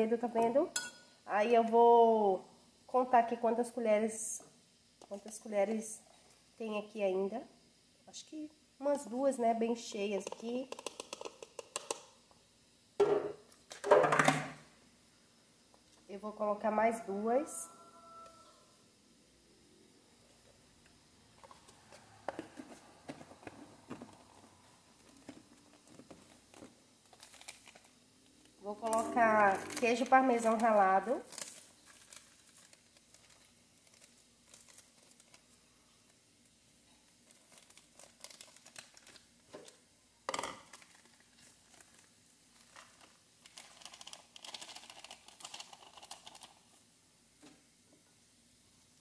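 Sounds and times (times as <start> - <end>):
metal spoon clinking on containers: 0.7 - 1.1
plastic crinkling: 23.4 - 36.2, 37.0 - 39.8, 40.6 - 46.8.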